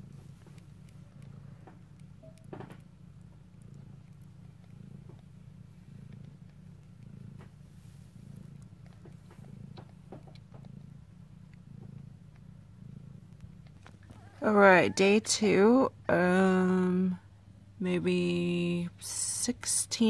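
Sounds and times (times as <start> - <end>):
faint small clicks: 0.0 - 12.5, 13.2 - 14.3
cat purring: 0.0 - 20.0.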